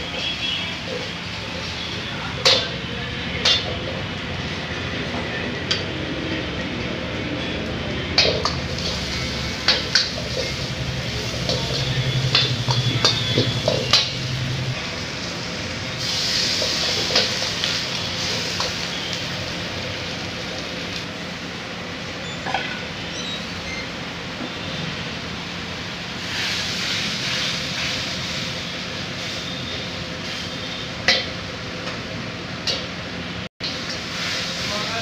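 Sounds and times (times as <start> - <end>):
food sizzling in a wok: 8.2 - 35.0.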